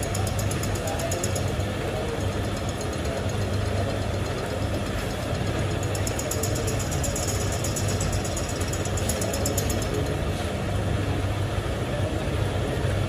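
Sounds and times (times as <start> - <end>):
rapid high ticking: 0.0 - 10.1.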